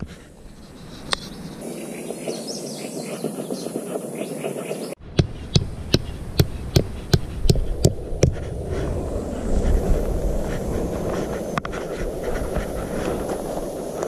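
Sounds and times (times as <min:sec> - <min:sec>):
hatchet pounding tent peg: 0:05.1 - 0:08.4.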